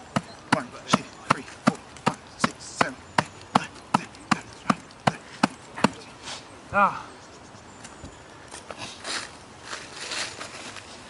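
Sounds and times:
rhythmic sharp knocks: 0:00.0 - 0:06.1.

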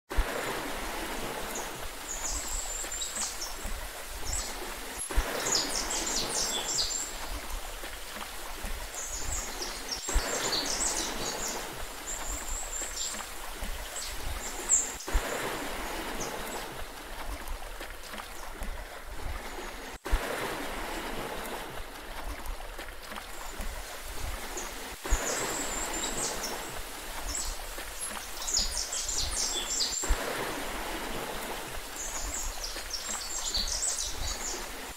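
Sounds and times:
sea water washing: 0:00.1 - 0:34.9
small birds chirping: 0:01.5 - 0:07.3, 0:08.8 - 0:15.2, 0:24.5 - 0:30.1, 0:32.0 - 0:34.7.

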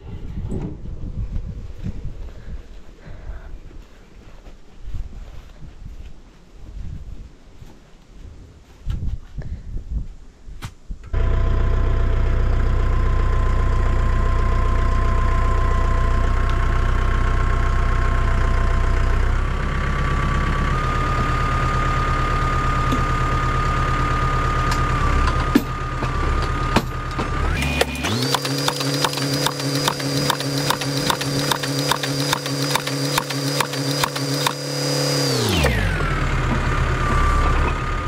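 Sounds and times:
tractor engine whining: 0:11.1 - 0:38.0.

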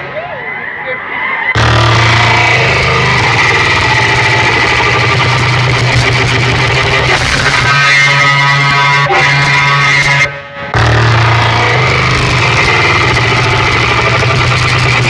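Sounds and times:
loud bass-heavy dj music: 0:01.5 - 0:15.0.

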